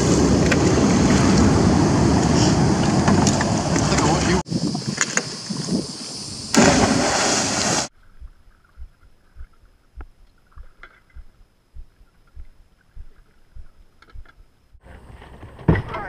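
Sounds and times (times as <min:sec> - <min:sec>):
water slapping pontoon drums: 0:00.0 - 0:05.8
wind noise on microphone: 0:00.0 - 0:14.5.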